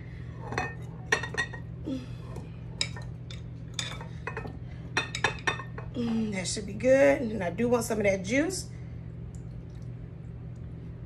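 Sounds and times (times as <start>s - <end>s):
utensil clinking on glass bowl: 0.4s - 1.6s.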